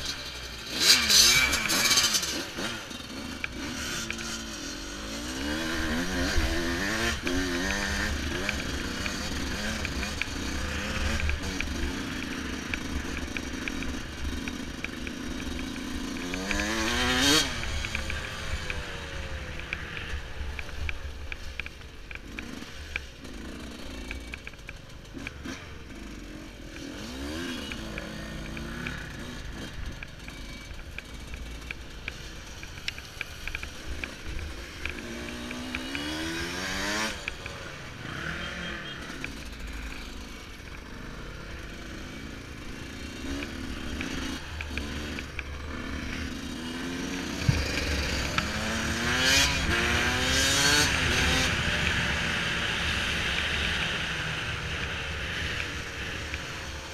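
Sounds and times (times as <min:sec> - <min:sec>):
dirt bike engine revving: 0:00.0 - 0:20.7, 0:25.1 - 0:56.9.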